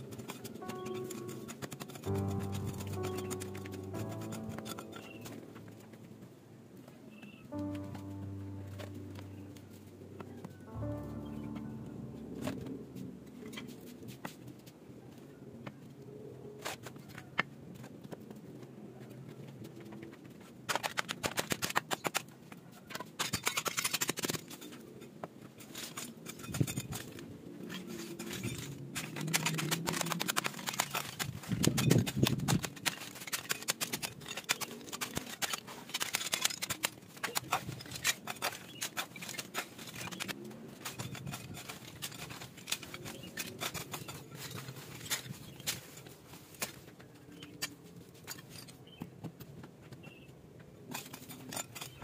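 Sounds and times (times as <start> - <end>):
brick fragments clinking: 25.8 - 45.7.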